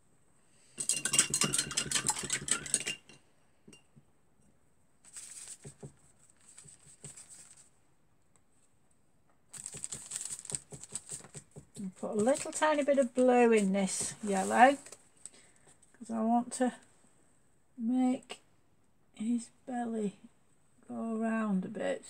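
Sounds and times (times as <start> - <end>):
paintbrush rattling in glass jar: 0.8 - 3.2, 9.6 - 13.2.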